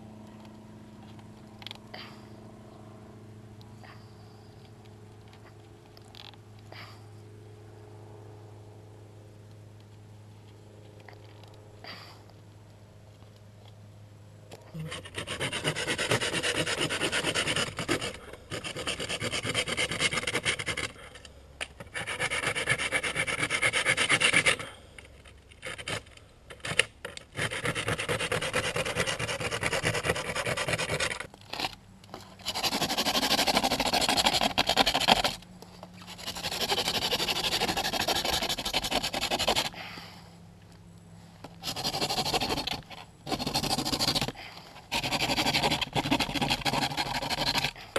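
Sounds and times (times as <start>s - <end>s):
pruning saw cutting a stick: 14.8s - 21.0s, 21.6s - 24.6s, 25.6s - 35.4s, 36.0s - 39.8s, 41.6s - 47.8s.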